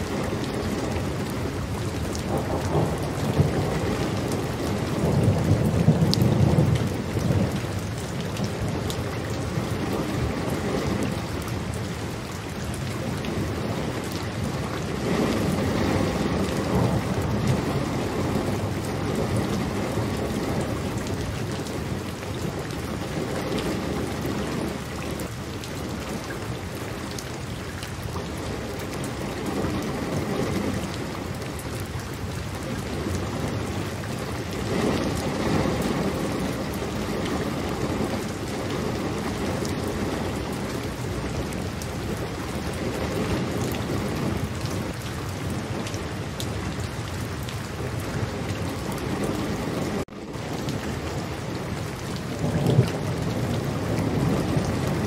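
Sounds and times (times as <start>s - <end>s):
distant thunder rumbles: 0.0s - 11.5s, 13.2s - 25.2s, 47.7s - 55.0s
steady rain patter: 0.0s - 55.0s.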